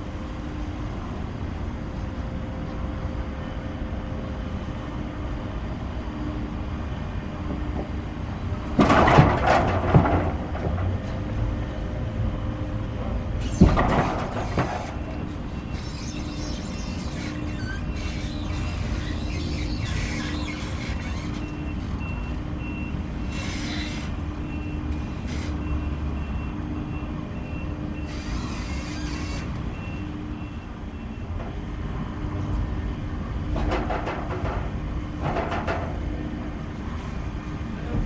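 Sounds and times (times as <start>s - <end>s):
clattering and knocks: 33.6s - 36.0s.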